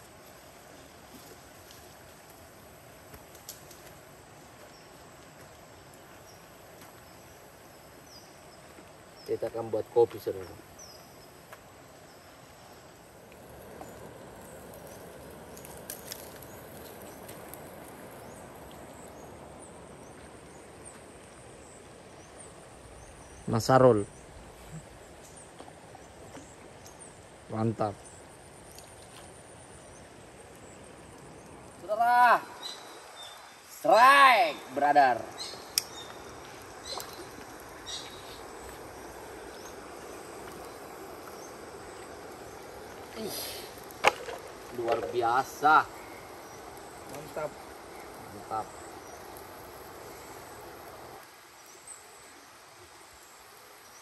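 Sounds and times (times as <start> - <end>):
outdoor background noise: 0.0 - 54.0
river water flowing: 0.0 - 54.0.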